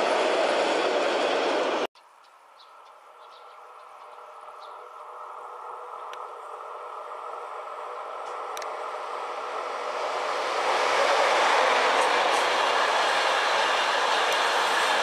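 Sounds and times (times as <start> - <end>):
freight train rolling past: 0.0 - 1.9, 3.1 - 15.0
wheels clicking on rails: 9.9 - 15.0.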